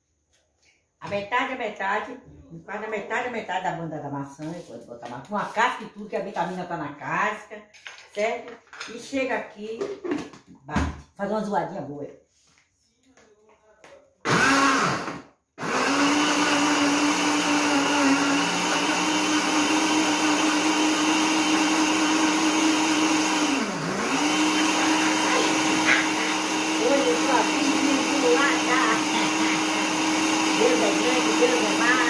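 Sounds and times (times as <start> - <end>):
blender motor running: 14.2 - 32.0.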